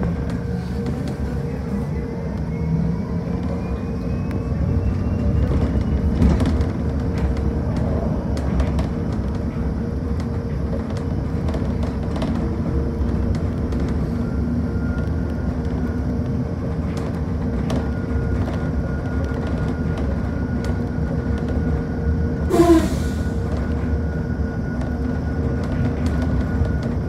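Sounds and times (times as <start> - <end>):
constant hum: 0.0 - 27.0
low road rumble: 0.0 - 27.0.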